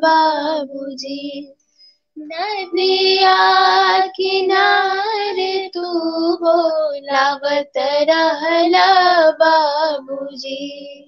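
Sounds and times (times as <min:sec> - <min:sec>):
women singing folk song: 0:00.0 - 0:01.6, 0:02.2 - 0:11.0.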